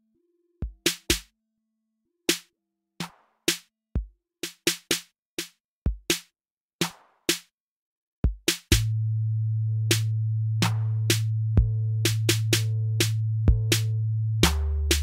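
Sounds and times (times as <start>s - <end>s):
drum machine kick: 0.6s - 1.3s, 5.9s - 6.2s, 8.2s - 8.9s, 11.6s - 12.3s, 13.5s - 13.8s
drum machine snare: 0.6s - 1.3s, 2.3s - 7.5s, 8.2s - 8.9s
low synth notes: 8.8s - 15.0s.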